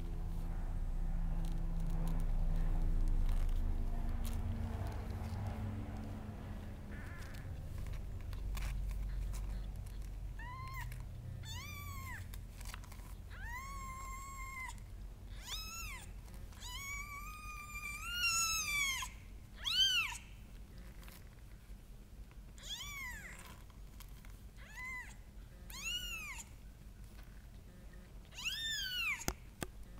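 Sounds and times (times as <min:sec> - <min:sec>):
low rumble: 0:00.0 - 0:11.4
kittens mewing: 0:06.8 - 0:20.4, 0:24.6 - 0:26.6, 0:28.3 - 0:29.4.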